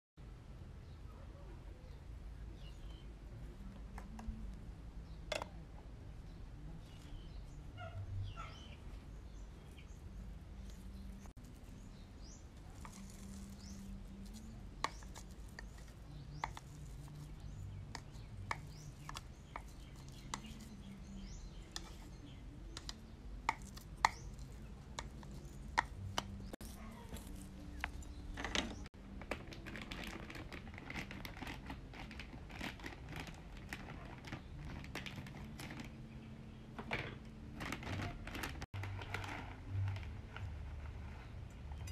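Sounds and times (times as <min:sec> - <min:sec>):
spoon scraping plastic cup: 0:10.6 - 0:28.9
plastic bag crackling: 0:26.6 - 0:36.0, 0:37.5 - 0:41.2.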